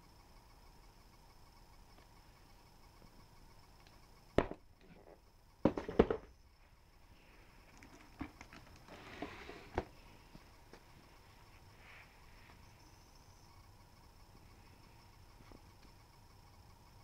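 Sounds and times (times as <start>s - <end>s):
cardboard boxes knocking: 5.6s - 6.3s.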